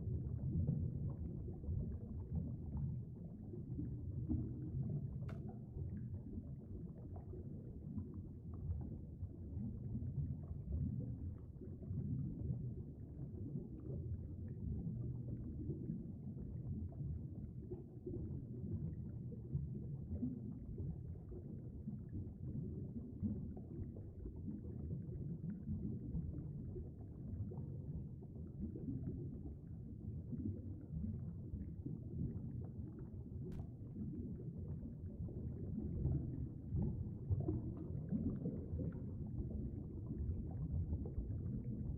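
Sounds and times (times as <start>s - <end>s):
muffled underwater stream rumble: 0.0s - 41.9s
faint click: 5.2s - 5.6s.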